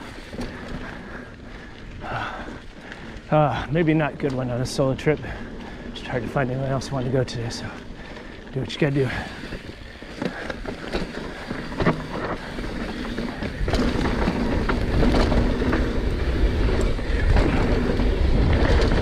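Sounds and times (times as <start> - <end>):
bike tyres on dirt and rock: 0.0 - 19.0
bike knocks and rattles: 9.1 - 19.0
wind rush on microphone: 10.7 - 19.0.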